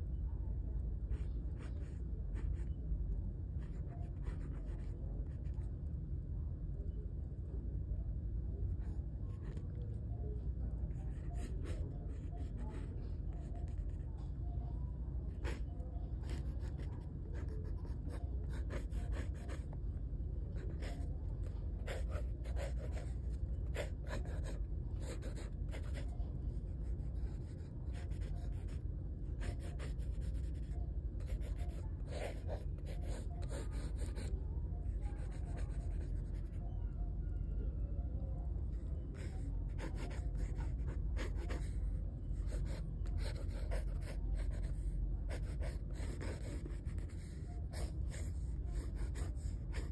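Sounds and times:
steady low hum: 0.0 - 49.9
pencil scratching on paper: 11.1 - 14.0, 15.3 - 19.8, 20.5 - 34.3, 35.0 - 36.6, 39.1 - 41.8, 42.4 - 49.9.

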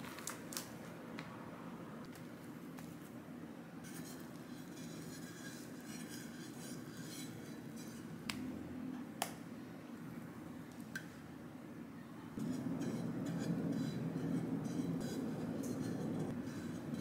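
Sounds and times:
low room hum: 0.0 - 17.0
spatula scraping cream on cake: 3.8 - 8.2, 12.4 - 17.0.

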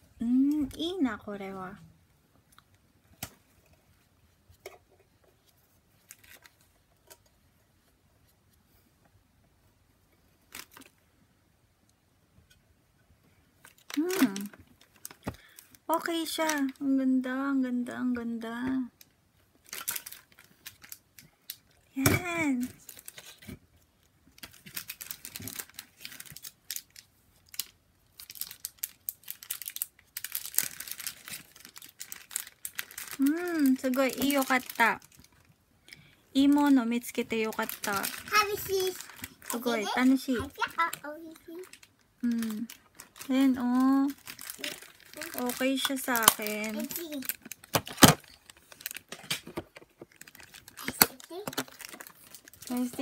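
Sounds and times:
plastic compact rustling: 44.1 - 53.0.

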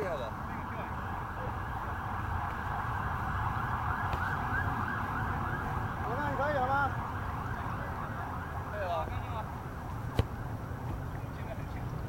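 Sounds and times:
emergency siren warbling: 0.2 - 9.4.

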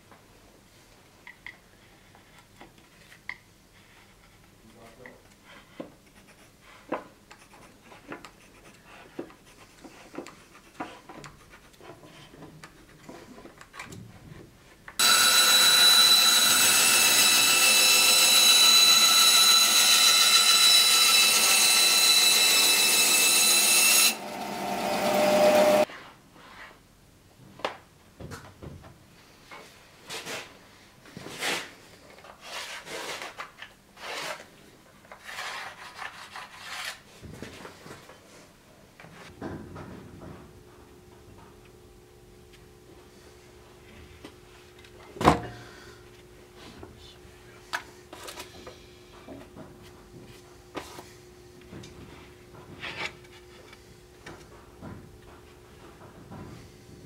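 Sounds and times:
pencil scratching on wood: 5.6 - 12.4
bandsaw cutting wood: 15.0 - 25.9.

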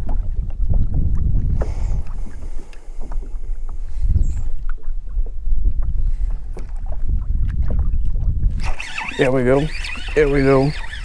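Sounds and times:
waves lapping against kayak hull: 0.0 - 11.0
wind rumbling on microphone: 0.0 - 11.0
short splashes: 8.5 - 11.0.

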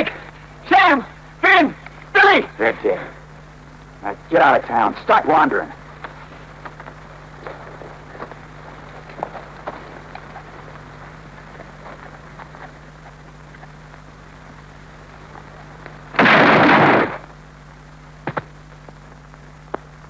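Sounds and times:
faint soundtrack crackle: 0.0 - 20.0
low hum: 0.0 - 20.0
gunshot blast: 16.1 - 17.2.

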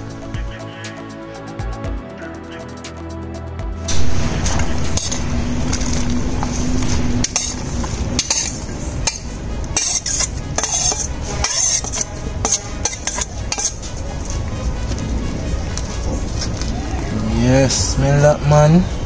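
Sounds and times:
low steady rumble: 3.9 - 9.8
metal spoon scraping steel bowl: 4.9 - 14.4.

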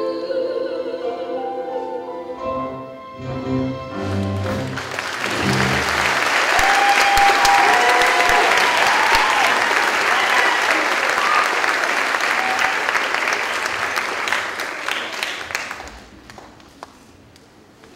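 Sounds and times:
audience applauding: 4.0 - 17.1
voices cheering: 5.3 - 13.5.

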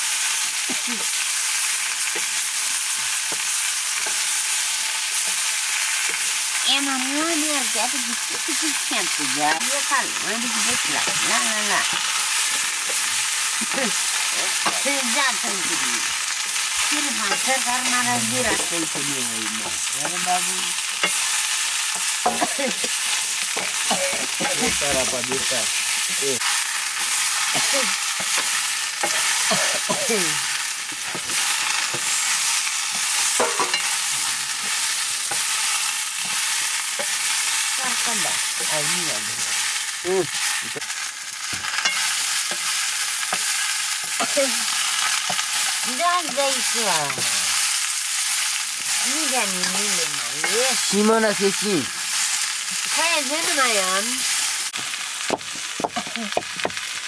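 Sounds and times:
potatoes sizzling in a pan: 0.0 - 57.0
spatula scraping a pan: 25.8 - 29.9, 30.8 - 40.6.

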